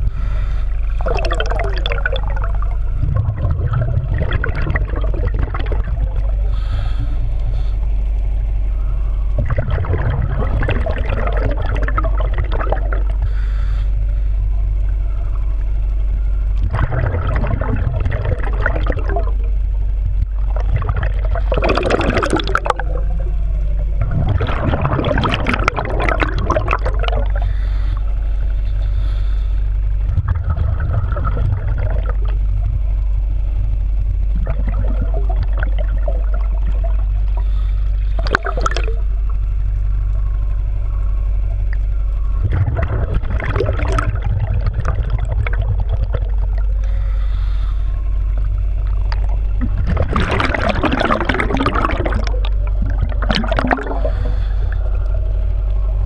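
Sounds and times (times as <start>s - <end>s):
diver's exhaled bubbles gurgling: 0.0s - 56.0s
low underwater rumble: 0.0s - 56.0s.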